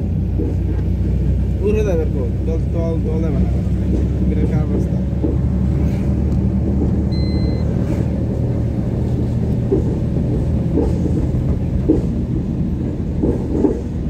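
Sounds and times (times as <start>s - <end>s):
road noise: 0.0s - 14.0s
vehicle engine hum: 0.0s - 14.0s.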